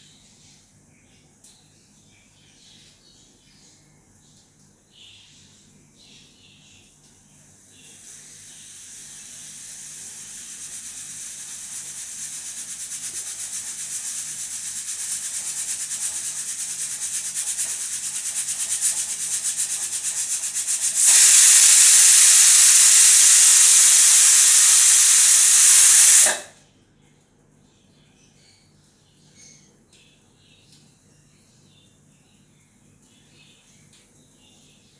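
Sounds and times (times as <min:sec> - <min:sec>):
pressure cooker steam hissing: 0:08.0 - 0:26.5
pressure cooker whistle: 0:17.6 - 0:26.5.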